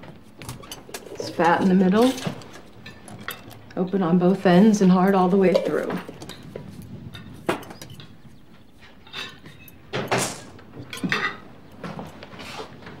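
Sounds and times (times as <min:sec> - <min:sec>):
crockery clinking and knocking: 0:08.8 - 0:12.1.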